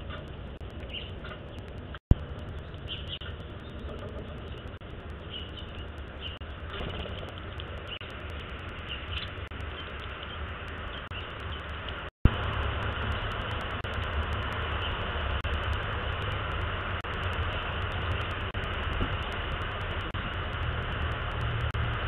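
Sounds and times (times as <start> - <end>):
outdoor rumbling with low hum: 0.0 - 22.0.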